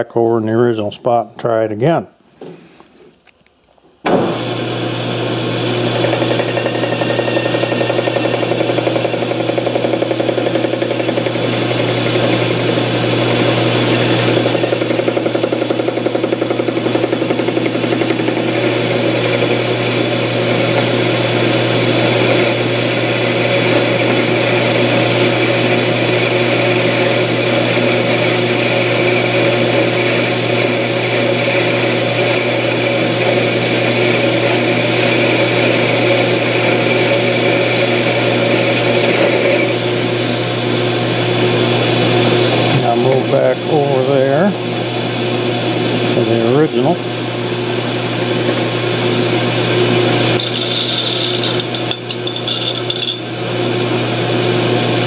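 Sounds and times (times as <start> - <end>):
metal lathe humming: 4.2 - 55.0
cutting tool cutting metal: 5.8 - 33.6, 50.2 - 53.3.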